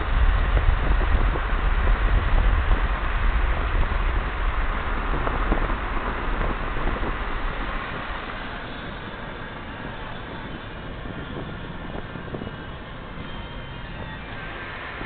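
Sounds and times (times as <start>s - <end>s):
moving car rumble: 0.0s - 15.0s
wind buffeting microphone: 0.0s - 15.0s.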